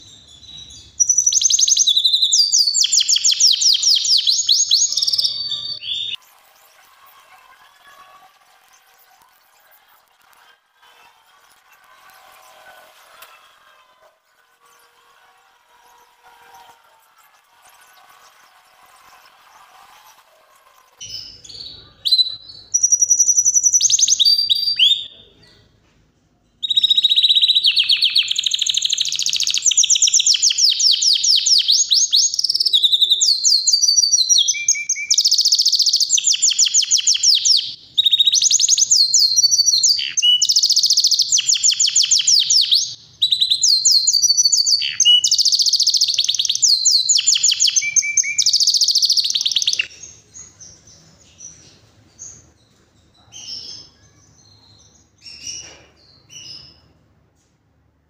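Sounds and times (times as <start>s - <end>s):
canary singing trills: 0.0s - 9.8s, 21.0s - 25.7s, 26.6s - 56.9s.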